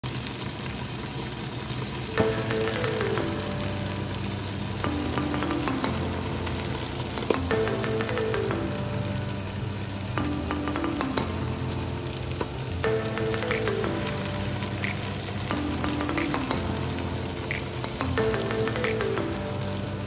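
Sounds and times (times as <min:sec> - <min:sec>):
food sizzling in oil: 0:00.0 - 0:20.0
soft melody: 0:02.1 - 0:20.0.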